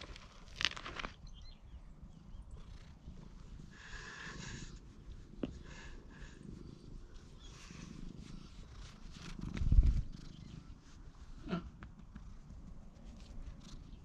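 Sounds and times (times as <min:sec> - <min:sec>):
cat purring: 0:02.1 - 0:11.3.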